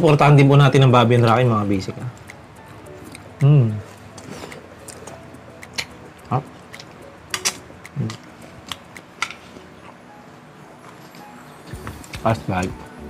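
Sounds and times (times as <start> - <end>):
sharp mouth clicks: 2.1 - 2.4, 3.0 - 9.1
person chewing and biting: 2.2 - 9.2.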